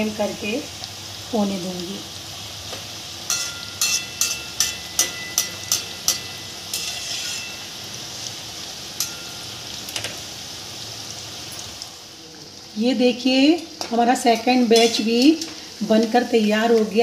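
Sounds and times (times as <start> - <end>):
food deep-frying in hot oil: 0.0 - 17.0
metal spoon clinking against wok: 3.3 - 7.7, 9.0 - 9.7, 14.8 - 15.1.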